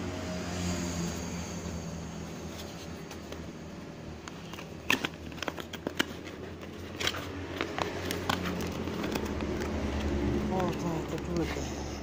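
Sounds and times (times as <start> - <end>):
cardboard clicks and scrapes: 2.3 - 3.6, 4.2 - 12.0.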